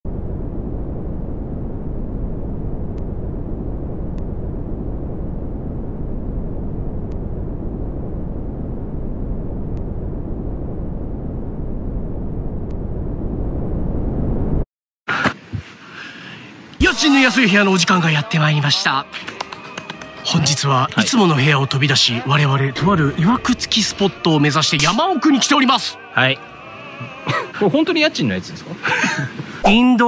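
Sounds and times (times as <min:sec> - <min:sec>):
dense low rumble: 0:00.0 - 0:14.6.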